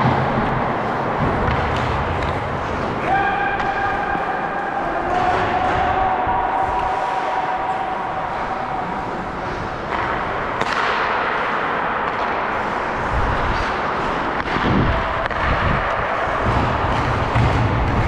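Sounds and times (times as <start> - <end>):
skates scraping on ice: 0.0 - 18.0
sharp cracks of play: 9.5 - 12.7.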